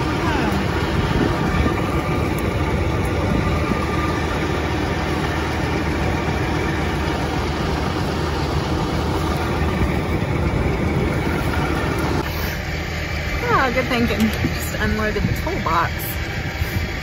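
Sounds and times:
farm machinery engine idling: 0.0 - 17.0.

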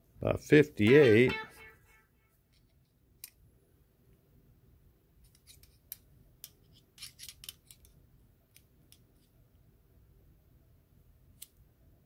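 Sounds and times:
caliper jaw clicks and scrapes: 5.2 - 7.9.

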